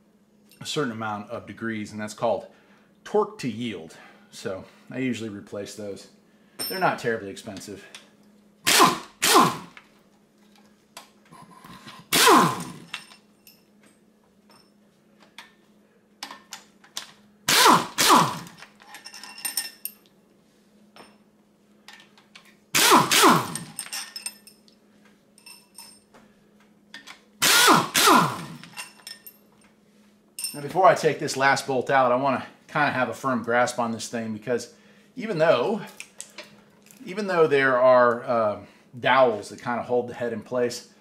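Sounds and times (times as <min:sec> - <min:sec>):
impact wrench spinning: 0:08.7 - 0:09.8, 0:11.6 - 0:13.2, 0:17.5 - 0:19.0, 0:22.8 - 0:24.2, 0:27.4 - 0:29.2
bolts and tools clinking: 0:11.6 - 0:15.6, 0:18.4 - 0:20.1, 0:23.3 - 0:24.8, 0:25.4 - 0:26.1, 0:28.2 - 0:29.7, 0:30.4 - 0:30.8.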